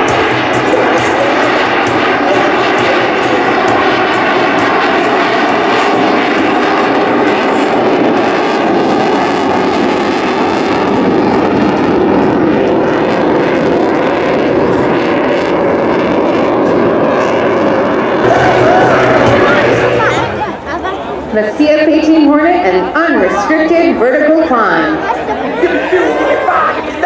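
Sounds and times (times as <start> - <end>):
fighter jet flying past: 0.0 - 27.0.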